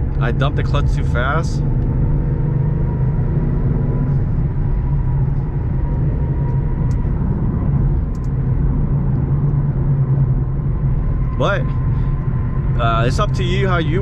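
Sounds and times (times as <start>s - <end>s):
car engine droning while driving: 0.0s - 14.0s.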